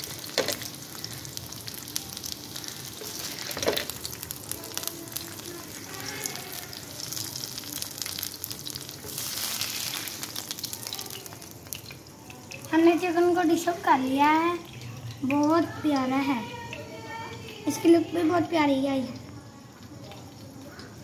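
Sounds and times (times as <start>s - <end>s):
oil spitting and crackling: 0.0s - 13.7s
chicken sizzling in frying pan: 0.0s - 21.0s.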